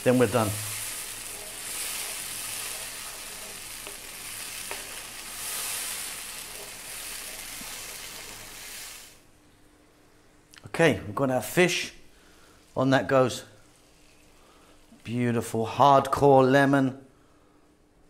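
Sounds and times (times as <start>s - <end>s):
vegetables sizzling in oil: 0.0s - 9.3s, 12.1s - 15.2s
wooden spoon tapping and scraping pan: 1.2s - 5.1s.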